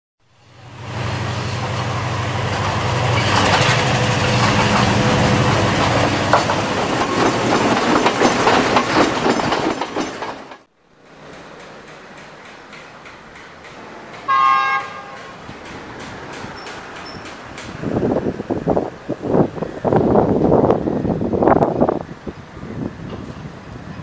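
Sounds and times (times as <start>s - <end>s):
outdoor background: 0.2s - 24.0s
diesel locomotive engine rumble: 0.3s - 24.0s
train wheels clattering over rail joints: 2.4s - 18.1s.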